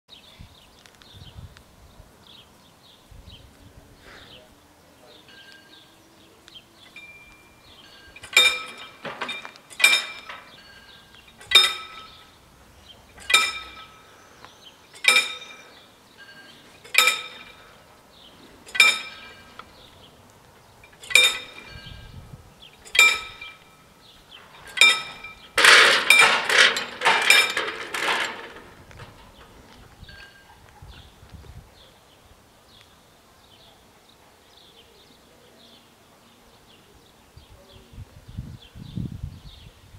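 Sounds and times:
level-crossing warning bell: 5.2s - 6.0s, 6.8s - 12.5s, 13.1s - 14.2s, 14.9s - 17.9s, 18.6s - 19.7s, 22.8s - 28.6s.

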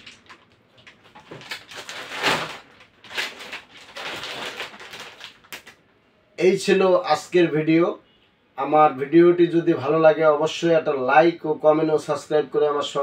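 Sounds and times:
plastic bags crinkling: 0.0s - 5.8s.

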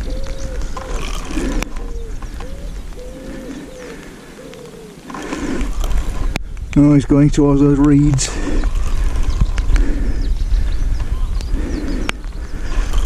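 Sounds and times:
pigeon cooing: 0.0s - 6.0s.

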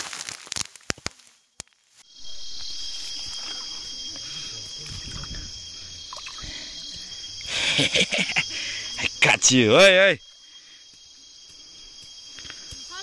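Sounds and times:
rice stalks struck with rustling cracks: 0.0s - 2.0s
insect chirring: 0.0s - 13.0s.

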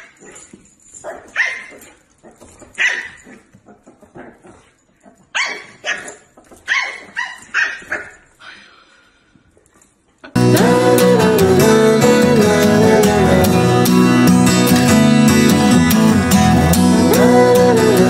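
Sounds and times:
puppy barking: 0.0s - 8.7s.

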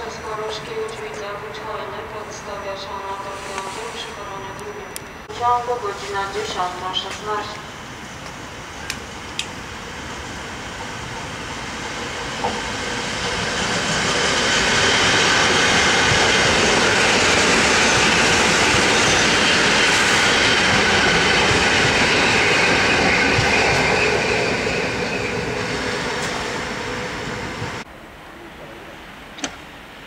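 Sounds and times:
train rolling past: 0.0s - 30.0s
wheel noise on rails: 7.8s - 28.0s.

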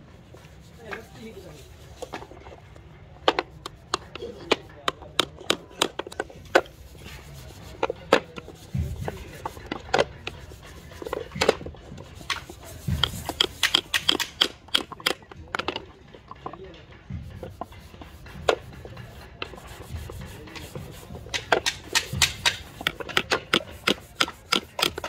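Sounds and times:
small hammer tapping nails: 3.3s - 6.6s, 13.0s - 16.5s, 21.3s - 25.0s.

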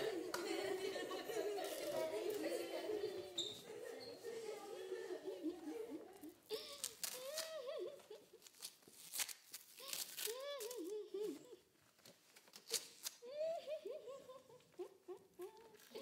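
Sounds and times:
tape being ripped: 6.8s - 7.6s, 8.4s - 10.9s, 12.4s - 13.2s.

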